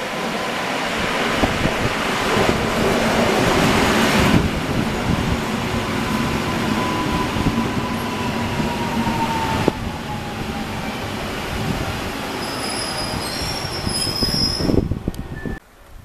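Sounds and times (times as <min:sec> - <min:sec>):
electric train running past: 0:00.0 - 0:15.6
train wheels squealing: 0:06.0 - 0:11.1, 0:12.3 - 0:15.6.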